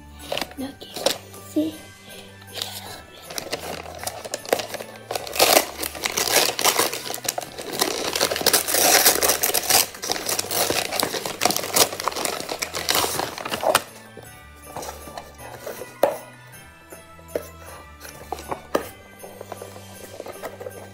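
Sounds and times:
wrapping paper tearing and crumpling: 0.2s - 1.3s, 2.5s - 14.0s.

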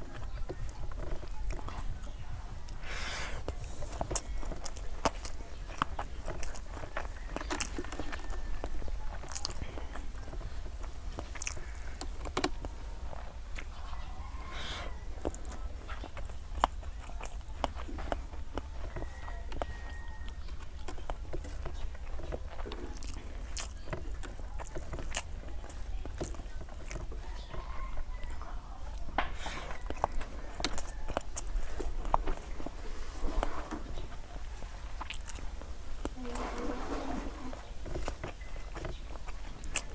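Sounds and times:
chewing: 0.0s - 39.9s
fingers squishing rice on steel plate: 0.0s - 39.9s.

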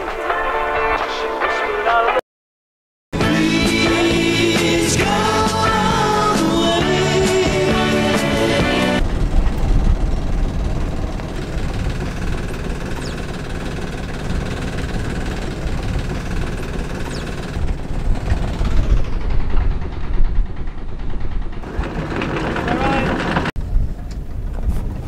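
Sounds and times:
boat diesel engine running: 3.2s - 25.0s
wind noise on microphone: 9.0s - 22.3s, 23.5s - 25.0s.

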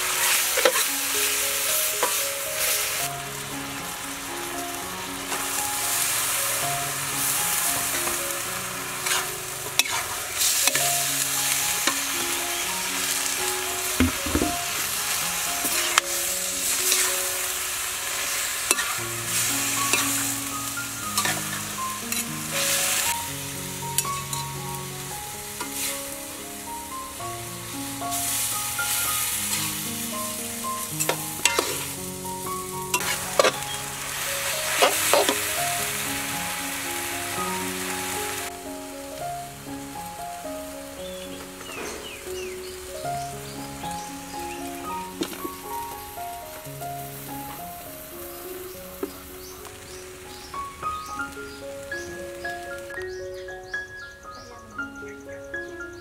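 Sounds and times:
food sizzling in a wok: 0.0s - 55.0s
metal spatula scraping wok: 0.2s - 1.4s, 2.0s - 3.0s, 8.8s - 10.8s, 13.9s - 20.4s, 21.1s - 23.2s, 31.0s - 32.0s, 32.9s - 35.5s.

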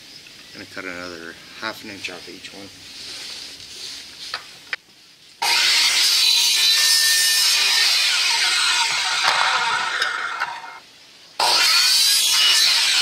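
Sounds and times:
saw cutting plastic tubing: 5.4s - 10.8s, 11.4s - 13.0s.

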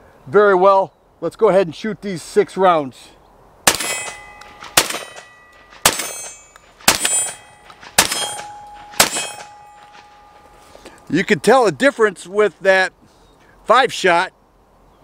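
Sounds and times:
shotgun shots: 3.7s - 10.3s
steel targets ringing: 3.7s - 12.4s.

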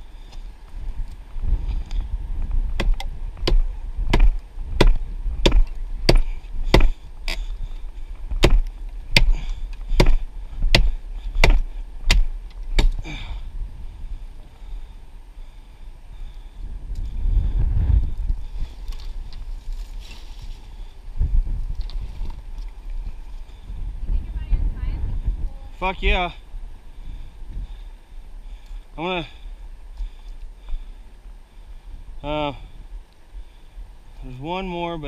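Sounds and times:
hatchet chopping wood: 2.8s - 7.5s, 8.4s - 13.2s.

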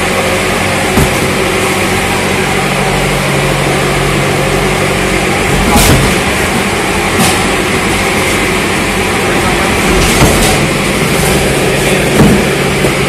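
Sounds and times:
loud engine drone: 0.0s - 13.0s
dull thuds of cartons: 0.9s - 1.4s, 5.5s - 6.3s, 12.1s - 13.0s.

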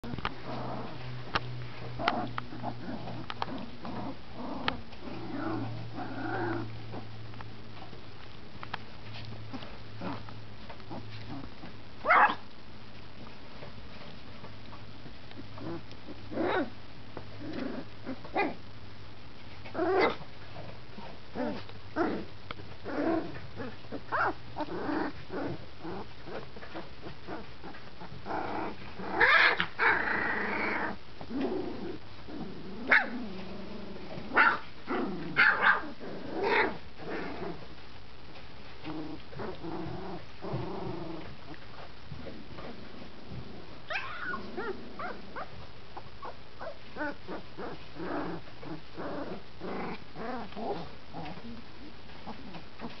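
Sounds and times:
puppies growling: 0.0s - 7.9s, 9.1s - 12.4s, 14.7s - 18.6s, 19.6s - 37.8s, 38.7s - 53.0s.

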